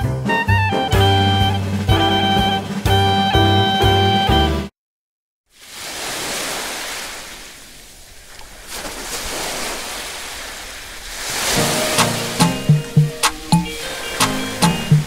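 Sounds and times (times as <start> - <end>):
music: 0.0 - 4.7, 11.6 - 15.0.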